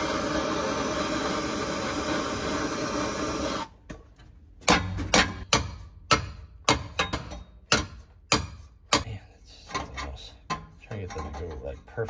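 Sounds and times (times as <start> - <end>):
gas torch hissing: 0.0 - 3.7
hammer striking metal pipe: 4.6 - 9.1.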